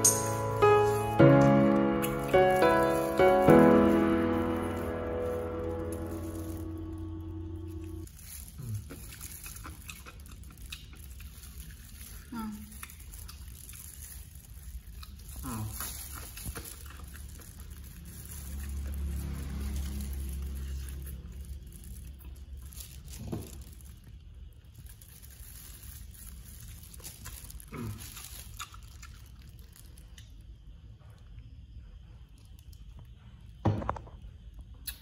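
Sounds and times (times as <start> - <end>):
person chewing and sucking: 0.0 - 30.7.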